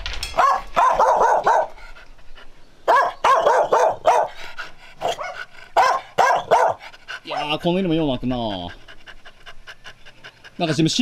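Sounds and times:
dog barking: 0.4s - 1.8s, 2.9s - 4.4s, 5.0s - 7.6s.

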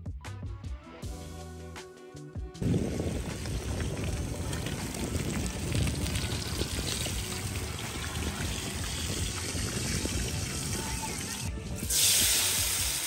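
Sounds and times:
low rumble: 2.6s - 11.8s
fish sizzling in hot oil: 2.6s - 13.0s.

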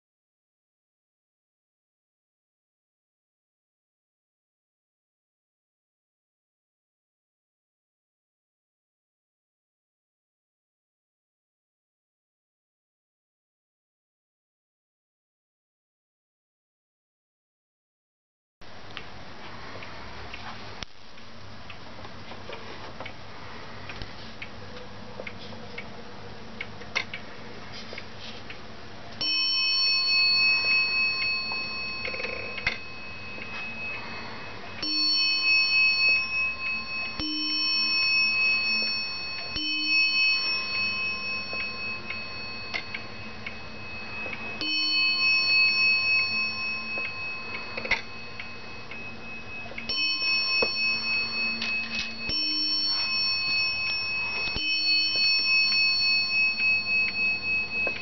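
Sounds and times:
clock bell striking: 29.2s - 58.0s
wall clock ticking: 30.6s - 33.7s.

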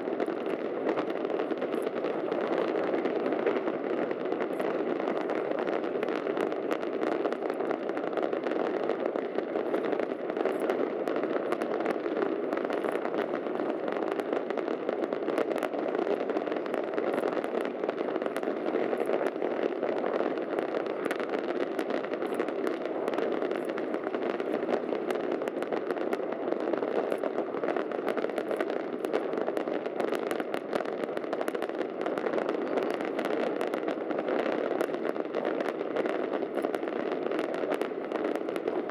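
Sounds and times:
fireworks crackling: 0.0s - 38.9s.

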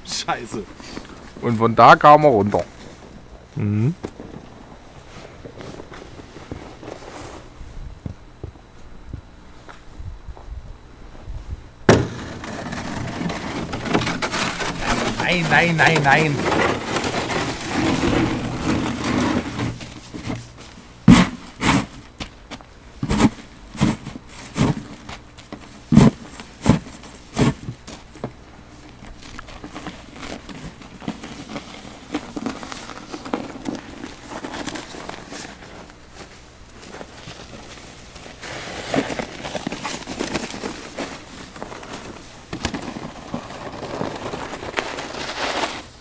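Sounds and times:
snow scoop scraping snow: 5.0s - 7.5s, 12.1s - 22.0s, 25.7s - 28.2s, 29.2s - 46.0s.

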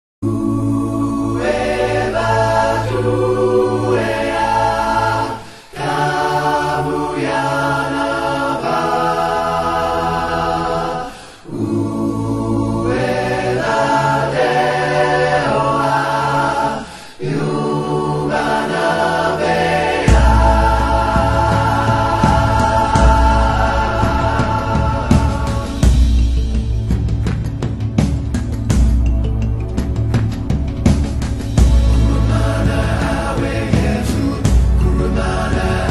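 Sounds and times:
choir singing a cappella: 0.2s - 27.4s, 30.9s - 35.9s
deep bass note: 20.1s - 33.4s.

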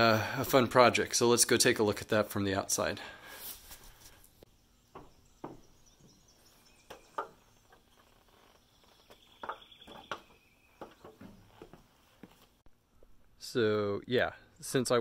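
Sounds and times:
faint outdoor ambience: 0.0s - 15.0s
footsteps on aluminum stepladder: 6.8s - 12.4s.

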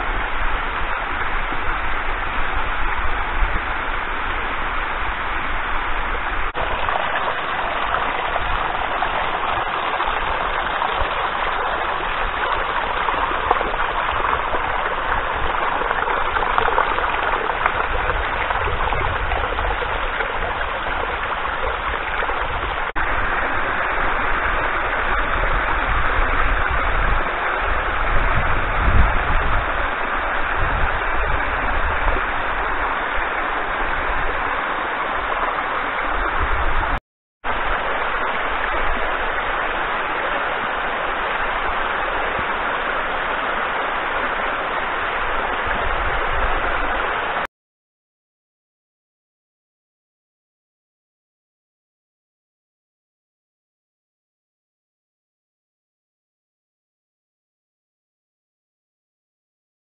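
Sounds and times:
water splashing down steps: 6.5s - 23.0s.

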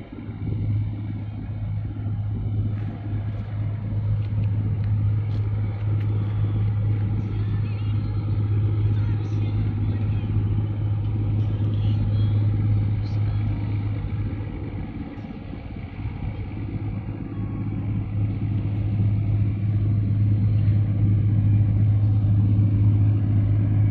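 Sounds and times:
low engine drone: 0.0s - 23.9s.

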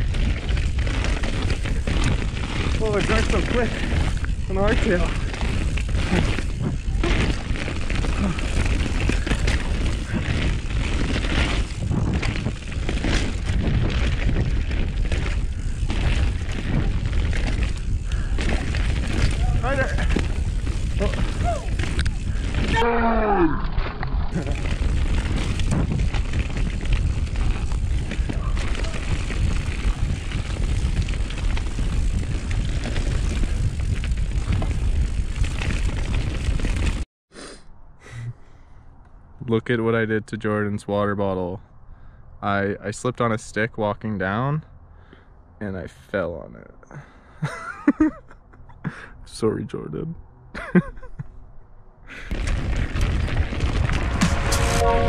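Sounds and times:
bike rattling over rough dirt: 0.0s - 23.0s, 23.6s - 37.0s, 52.1s - 55.0s
wind rumbling on microphone: 0.0s - 37.0s, 52.1s - 55.0s.

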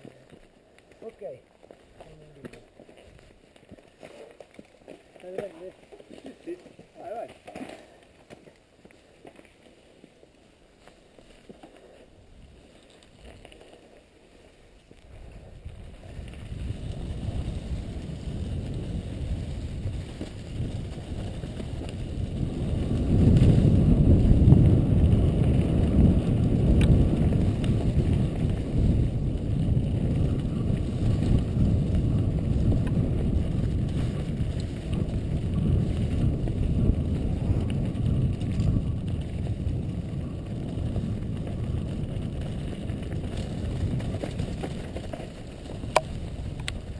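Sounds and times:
tyres rolling over gravel: 0.0s - 46.9s
wind rushing on microphone: 15.0s - 46.9s.

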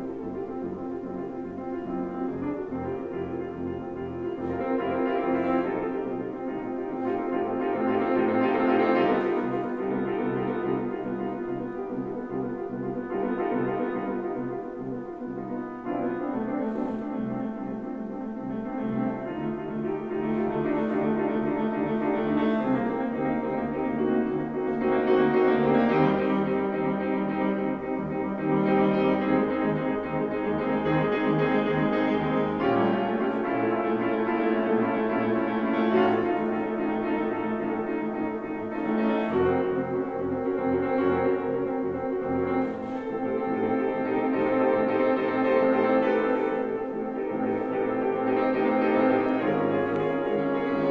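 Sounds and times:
solo grand piano chords: 0.0s - 50.9s.

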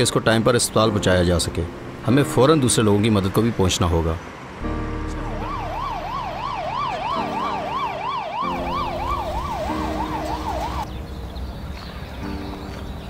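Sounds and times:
ambulance siren yelping: 4.7s - 10.9s.

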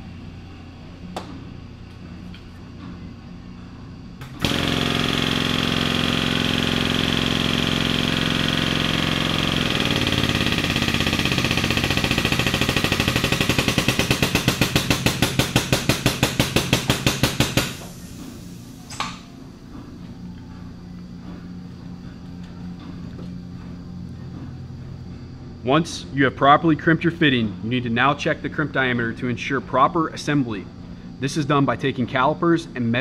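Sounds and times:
rapid hammering: 4.2s - 17.9s
power tool motor running: 4.2s - 18.8s.

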